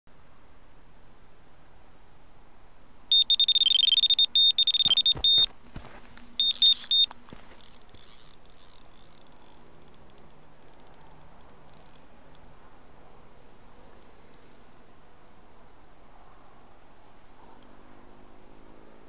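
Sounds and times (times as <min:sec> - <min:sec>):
electronic bite alarm beeping: 0:03.1 - 0:05.5, 0:06.4 - 0:07.1.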